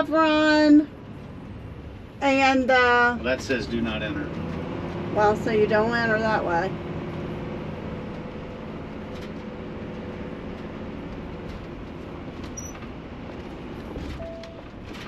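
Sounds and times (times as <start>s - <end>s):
engine and road rumble: 0.0s - 15.0s
short tone: 14.2s - 14.7s.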